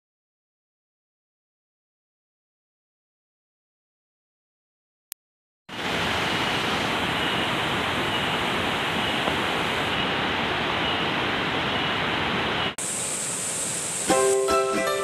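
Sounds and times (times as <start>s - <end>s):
waterfall and stream rushing: 5.7s - 15.0s.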